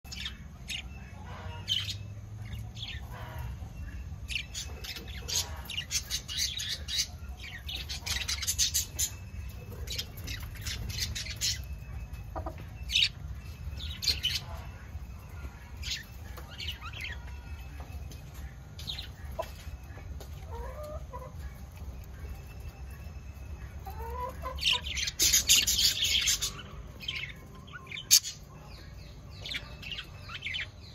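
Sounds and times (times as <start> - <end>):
budgies chirping and chattering: 0.1 - 30.9.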